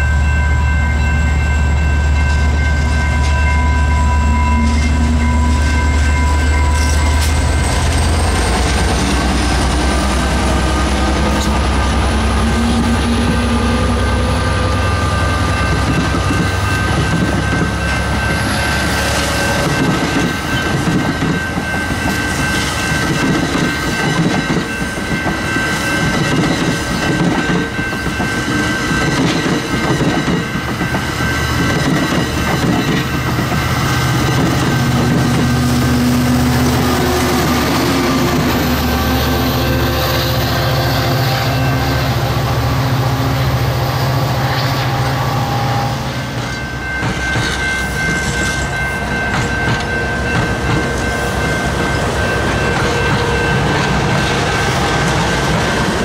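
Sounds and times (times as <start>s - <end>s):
train wheels clattering on rails: 0.0s - 40.5s, 46.2s - 56.0s
crossing bell ringing: 0.0s - 56.0s
diesel locomotive engine drone: 0.0s - 56.0s.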